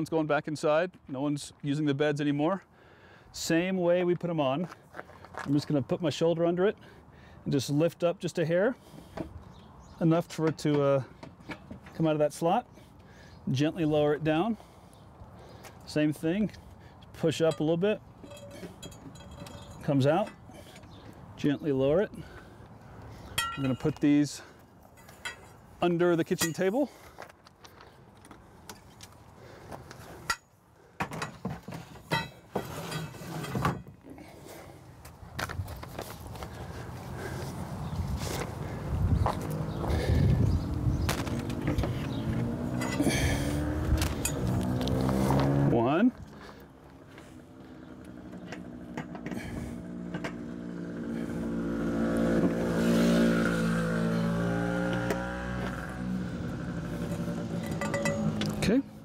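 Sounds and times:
metal poles clicking: 0:17.4 - 0:21.0, 0:23.3 - 0:24.1, 0:24.9 - 0:25.5, 0:41.2 - 0:45.2, 0:57.6 - 0:58.8
metal bars clinking and knocking: 0:17.5 - 0:20.8, 0:23.4 - 0:24.0, 0:25.0 - 0:25.5, 0:57.6 - 0:58.8
vehicle passing by: 0:36.5 - 0:59.0.

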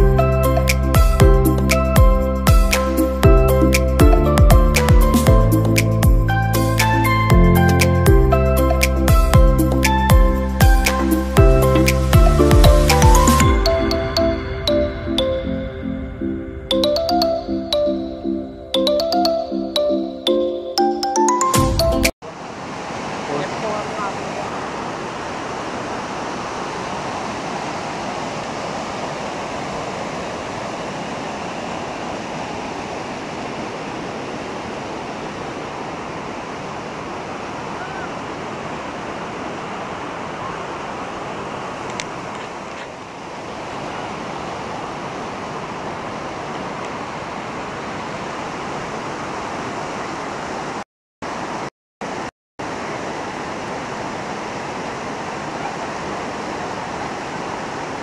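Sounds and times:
waterfall rushing over rocks: 0:22.2 - 0:58.0.

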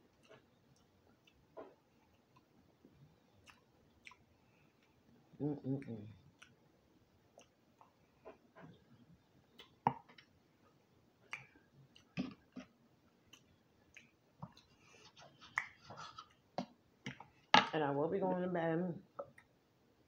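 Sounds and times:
person chewing food: 0:00.0 - 0:10.4, 0:11.2 - 0:17.5
wet mouth smacks and clicks: 0:11.3 - 0:12.2.

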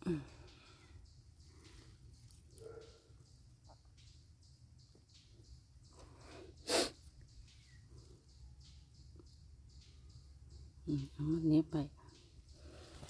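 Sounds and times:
soft breath intake: 0:06.1 - 0:07.1
sharp snort of breath: 0:06.6 - 0:07.0.

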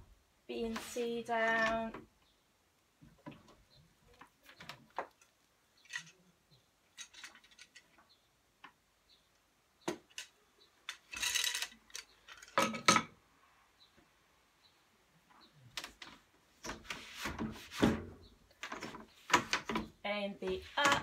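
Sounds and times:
wooden clicks of a hand loom: 0:00.7 - 0:02.1, 0:03.2 - 0:06.3, 0:06.9 - 0:08.8, 0:09.8 - 0:13.1, 0:18.5 - 0:21.0.

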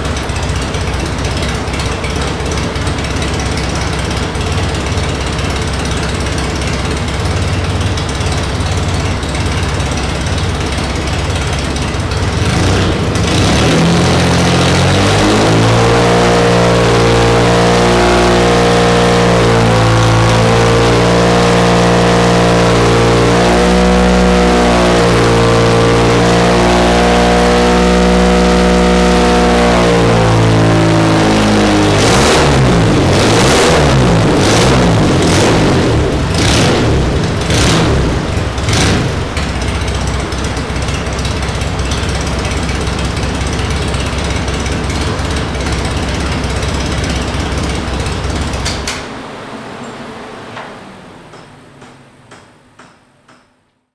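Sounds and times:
sharp exhaust cracks: 0:00.0 - 0:52.9
engine running at high revs: 0:09.1 - 0:52.3.

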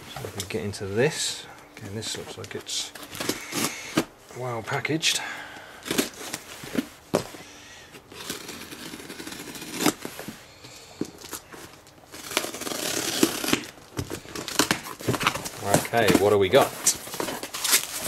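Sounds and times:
tape rasping as pulled away: 0:08.0 - 0:10.3, 0:12.1 - 0:18.0
knife slicing packing tape: 0:08.1 - 0:10.1, 0:12.1 - 0:15.4, 0:16.8 - 0:18.0.

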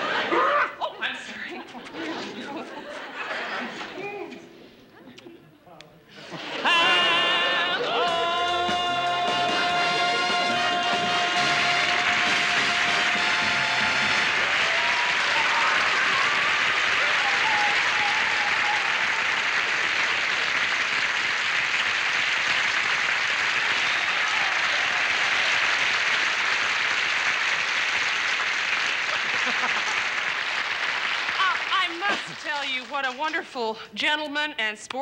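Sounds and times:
audience applauding: 0:06.4 - 0:33.2.

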